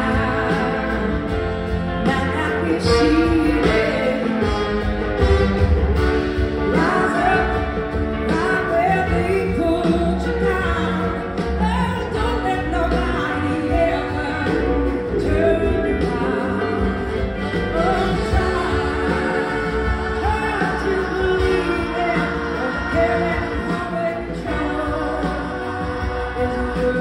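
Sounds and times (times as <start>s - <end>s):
woman singing lead: 0.0s - 5.3s, 6.0s - 27.0s
backing singers: 0.0s - 5.4s, 12.9s - 27.0s
live band music: 0.0s - 27.0s.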